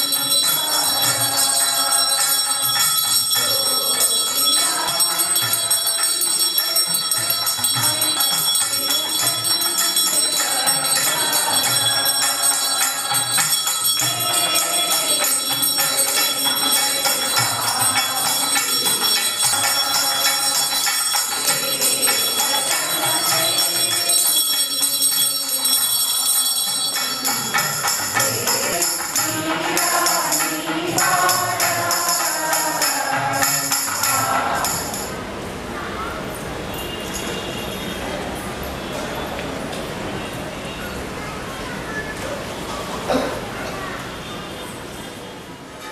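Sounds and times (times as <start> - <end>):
music: 0.0 - 35.1
hand bell ringing: 0.0 - 35.3, 36.8 - 38.9.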